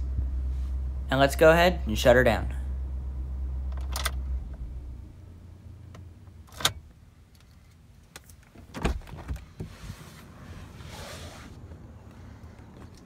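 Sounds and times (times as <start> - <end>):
truck engine idling: 0.0 - 6.2.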